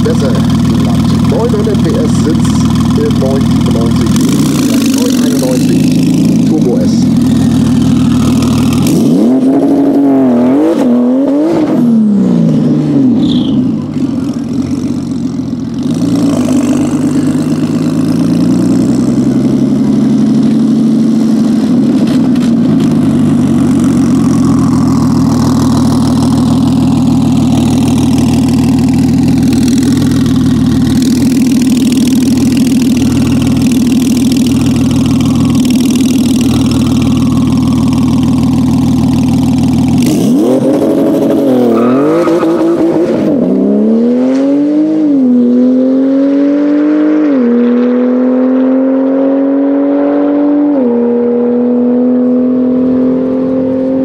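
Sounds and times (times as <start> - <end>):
car engine idling: 0.0 - 10.4, 11.9 - 43.6
car engine accelerating: 0.0 - 54.0.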